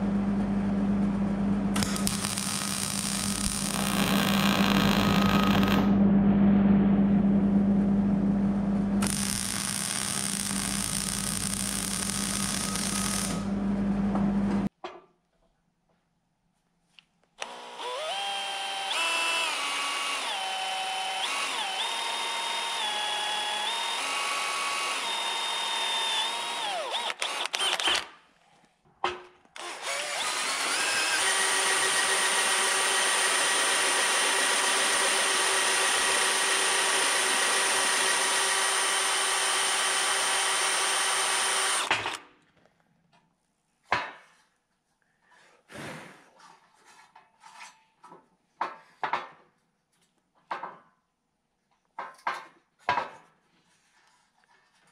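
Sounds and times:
cordless drill boring through steel: 1.8s - 5.9s, 9.0s - 13.5s, 17.4s - 28.1s, 29.6s - 42.2s.

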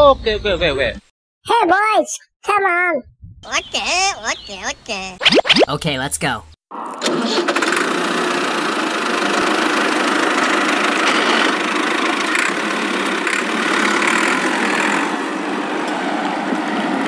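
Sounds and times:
toy tractor running: 7.0s - 15.1s.

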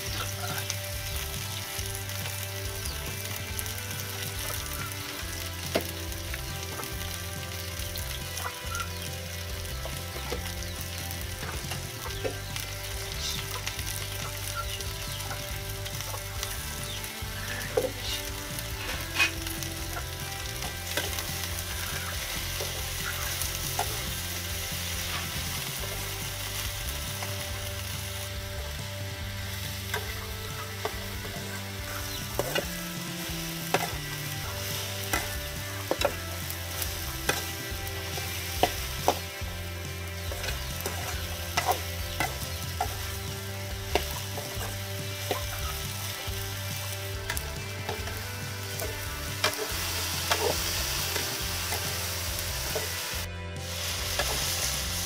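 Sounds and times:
vegetables sizzling in oil: 0.0s - 55.0s
spatula scraping and clacking on pan: 17.4s - 26.1s, 29.6s - 53.2s, 54.0s - 55.0s.

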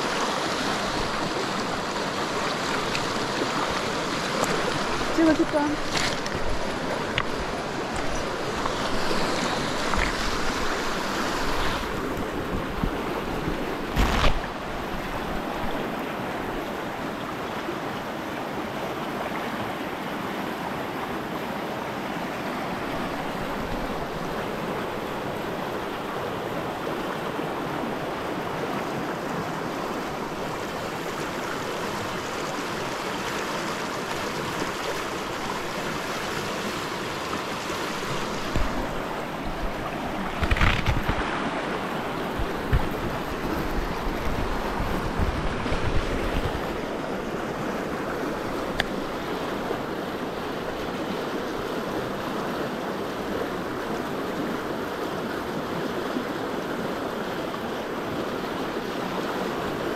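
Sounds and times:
river rushing over stones: 0.0s - 59.9s
wind buffeting microphone: 4.6s - 15.8s, 38.0s - 47.0s.

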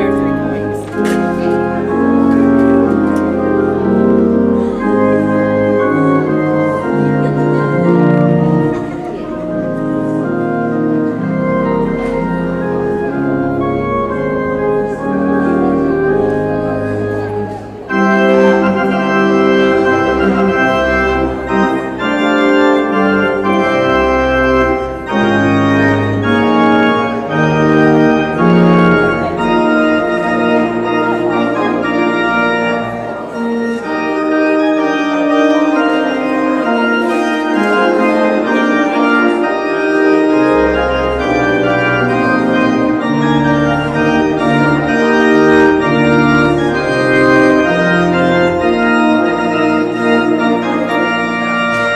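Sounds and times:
organ sustained chords: 0.0s - 51.9s
deep organ bass line: 33.4s - 51.9s.

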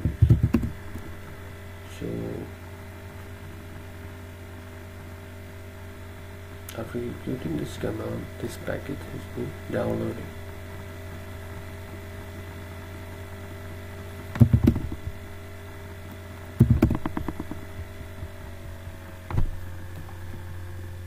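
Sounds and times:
electrical hum: 0.0s - 21.0s
keyboard keys clicking: 14.4s - 15.0s, 16.6s - 17.6s.

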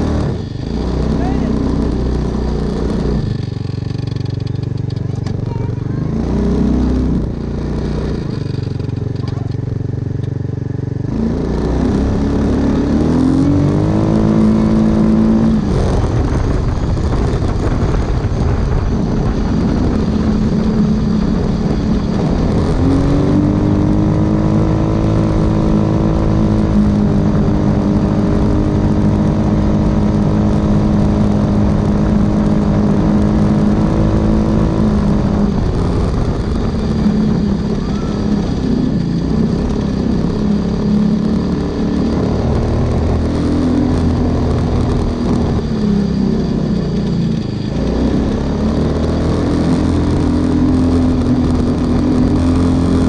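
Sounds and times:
go-kart engine revving: 0.0s - 53.0s
steady rushing noise: 0.0s - 53.0s.

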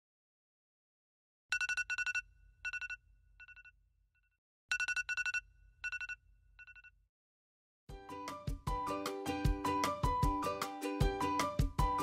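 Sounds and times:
electronic phone ringtone: 1.5s - 3.7s, 4.7s - 6.9s.

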